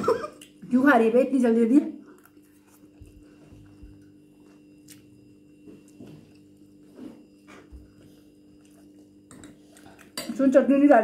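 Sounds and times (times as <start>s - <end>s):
steady low hum: 0.0s - 11.0s
chewing and slurping noodles: 7.8s - 10.2s.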